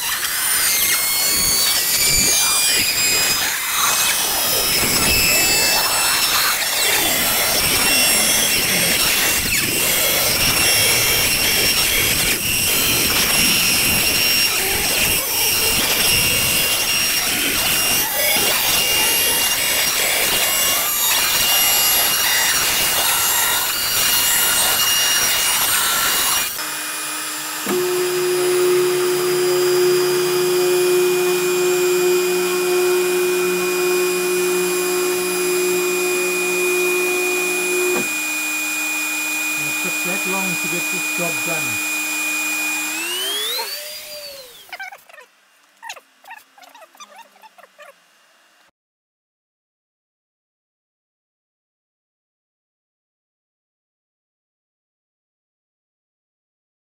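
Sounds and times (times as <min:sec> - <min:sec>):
router cutting wood: 0:00.0 - 0:44.8.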